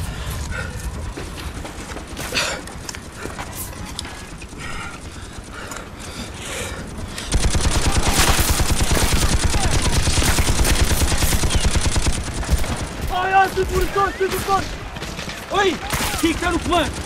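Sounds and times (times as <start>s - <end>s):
automatic gunfire: 7.3s - 17.0s.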